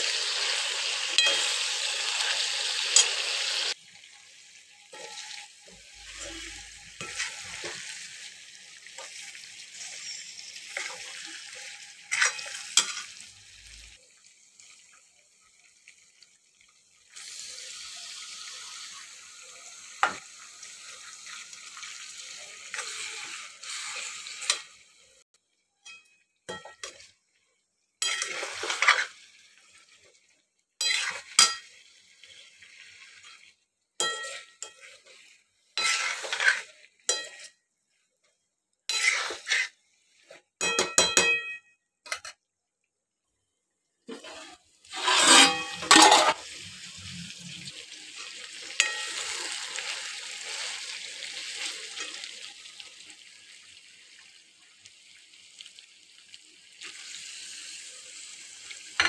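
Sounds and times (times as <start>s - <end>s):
meat sizzling in oil: 0.0s - 38.2s, 38.9s - 40.3s, 44.2s - 59.0s
spoon clinking and scraping pan: 1.1s - 3.4s, 4.9s - 8.2s, 8.9s - 13.3s, 25.8s - 27.1s, 28.0s - 29.2s, 30.8s - 31.8s, 34.0s - 35.2s, 35.8s - 37.6s, 38.9s - 39.8s, 40.6s - 42.4s, 44.1s - 46.4s, 48.7s - 50.8s.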